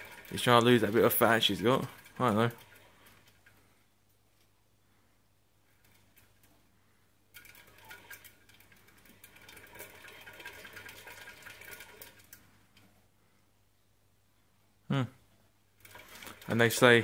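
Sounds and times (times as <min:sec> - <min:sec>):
exercise wheel whirring and clicking: 0:00.0 - 0:04.6, 0:05.4 - 0:13.2, 0:15.7 - 0:17.0.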